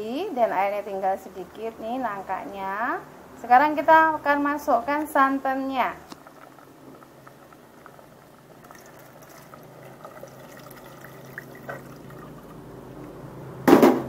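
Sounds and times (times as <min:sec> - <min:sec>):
faint pouring into strainer: 0:07.3 - 0:12.6.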